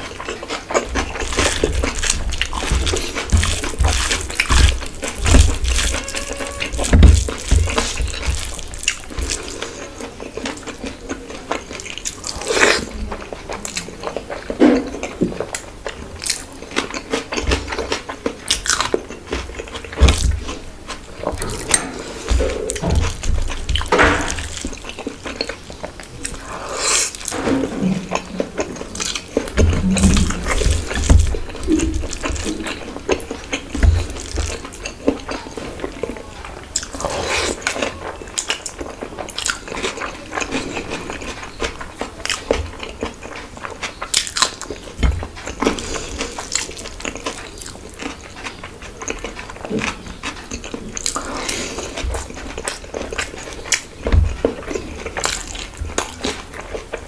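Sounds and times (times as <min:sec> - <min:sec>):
wet chewing and lip smacks: 0:00.0 - 0:27.4, 0:28.0 - 0:57.0.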